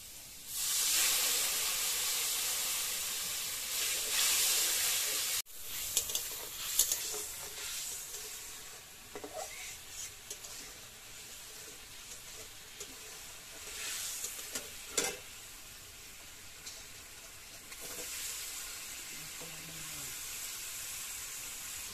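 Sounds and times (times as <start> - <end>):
food sizzling in a pan: 0.0 - 21.9
spatula scraping a pan: 3.7 - 15.3, 16.6 - 18.5.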